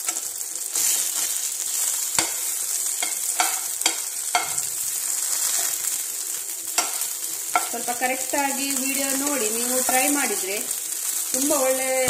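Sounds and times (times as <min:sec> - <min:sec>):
chillies sizzling in hot oil: 0:00.0 - 0:12.0
steel spoon scraping pan: 0:00.8 - 0:04.7.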